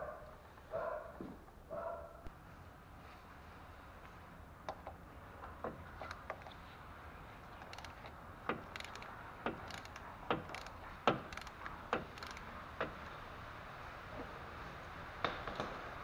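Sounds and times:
ratchet clicking: 0:07.6 - 0:12.5.

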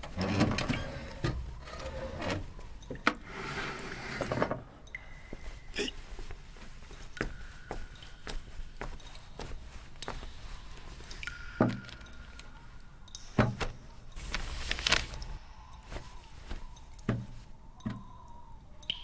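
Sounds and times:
paper rustle: 0:13.4 - 0:16.8.

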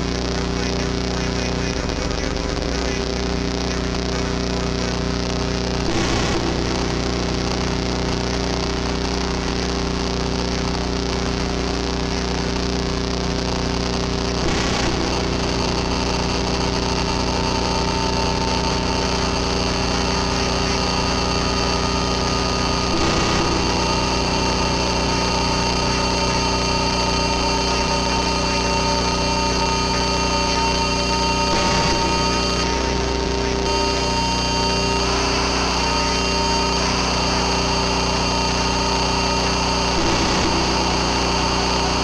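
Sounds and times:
fast low pulsing: 0:00.0 - 0:11.4, 0:13.2 - 0:42.0
buzzing synthesizer drone: 0:00.0 - 0:42.0.

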